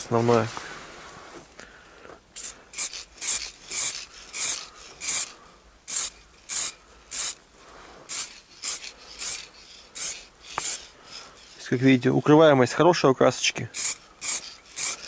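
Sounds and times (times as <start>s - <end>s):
spray paint can hissing: 2.4s - 7.4s, 8.1s - 11.7s, 13.7s - 15.0s.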